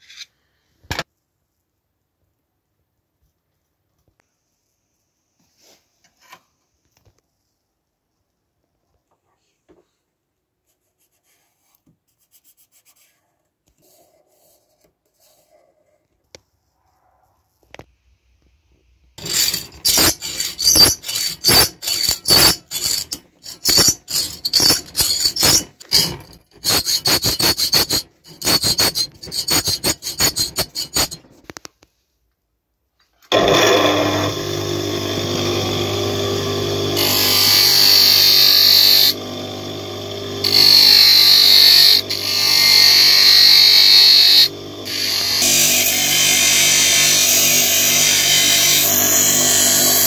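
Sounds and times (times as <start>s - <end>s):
bench grinder humming: 19.2s - 31.2s, 33.3s - 50.0s
blade grinding on wheel: 19.2s - 31.2s, 33.3s - 50.0s.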